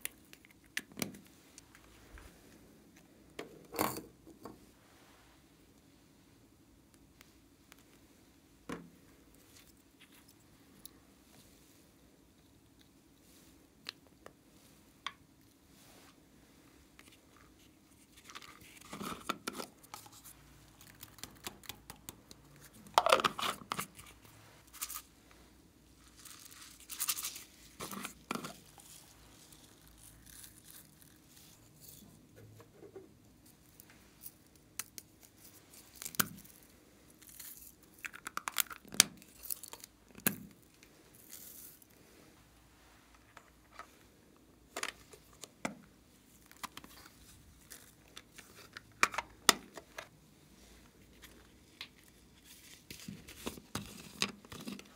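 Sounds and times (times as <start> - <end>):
plastic rustling and scraping: 17.0 - 21.4, 22.6 - 25.1, 26.0 - 33.1, 46.3 - 54.9.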